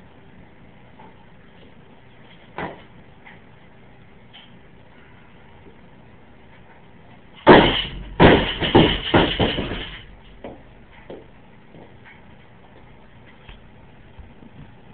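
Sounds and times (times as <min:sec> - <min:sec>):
barbell crashing on floor: 0:07.5 - 0:10.6.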